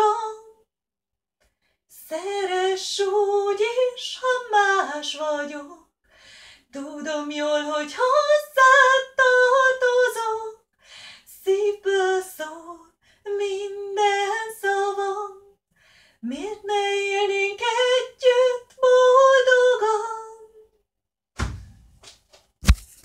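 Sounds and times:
woman singing unaccompanied: 0.0 - 0.6, 2.0 - 5.9, 6.7 - 10.6, 11.3 - 15.6, 16.2 - 20.7.

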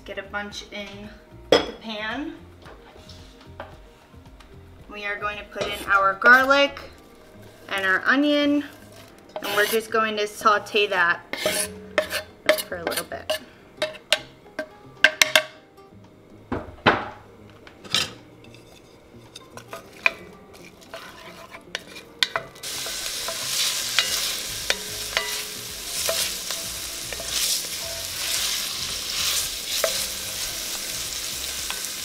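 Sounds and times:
spatula scraping pot: 5.6 - 10.0, 10.7 - 14.2, 18.0 - 32.0
onion sizzling in oil: 18.4 - 32.0.

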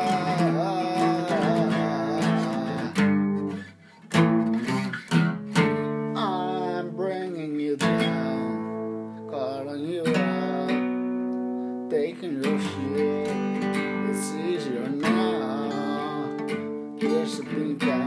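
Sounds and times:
man singing: 0.0 - 3.6, 5.8 - 18.0
acoustic guitar strumming: 0.0 - 18.0.

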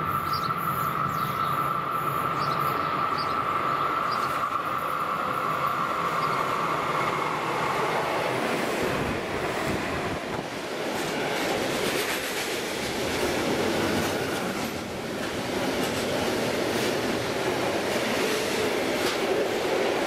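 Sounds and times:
train wheels rolling on rails: 0.0 - 20.0
clickety-clack clatter: 10.9 - 19.6.

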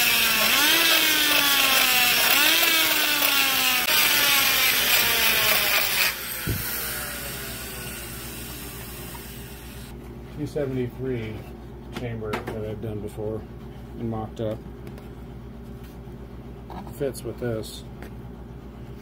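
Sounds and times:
die grinder whining: 0.0 - 9.9.

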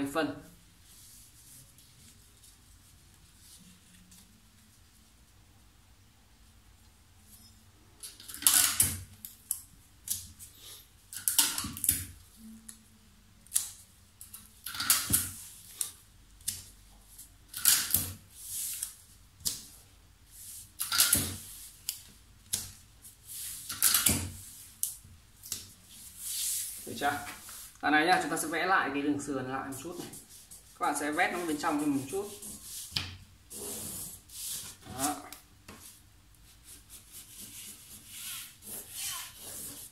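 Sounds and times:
paper rustling on table: 14.6 - 27.8, 29.8 - 39.9.

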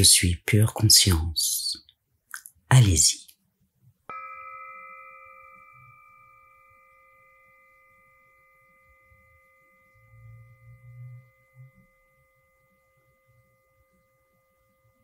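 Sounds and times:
bell ringing: 4.1 - 15.0.

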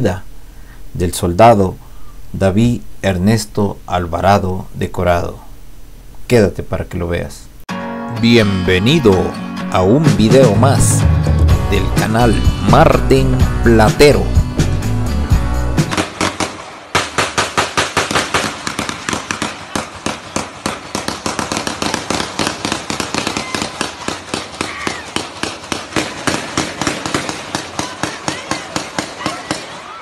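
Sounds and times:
sustained small-arms gunfire: 15.9 - 30.0.

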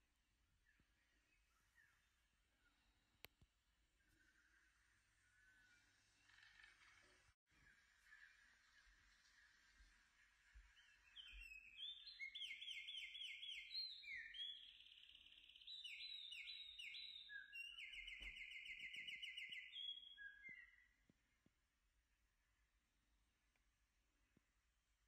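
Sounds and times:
high bird-like chirping: 10.7 - 20.8.

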